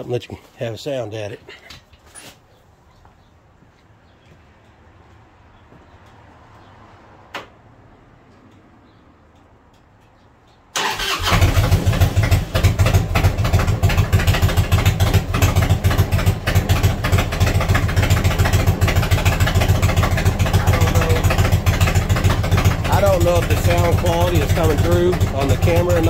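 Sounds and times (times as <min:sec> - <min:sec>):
motorcycle engine starting and idling: 0:10.7 - 0:26.0.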